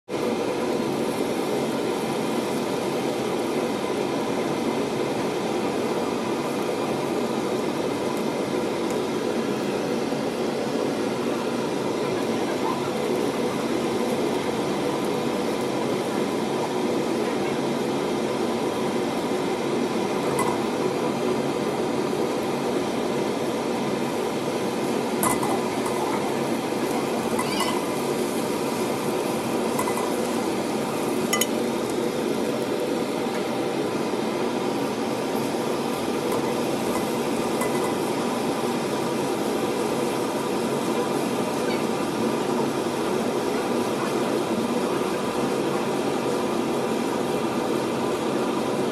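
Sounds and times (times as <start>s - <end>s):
eggs sizzling in a wok: 23.0s - 32.6s, 35.2s - 41.2s.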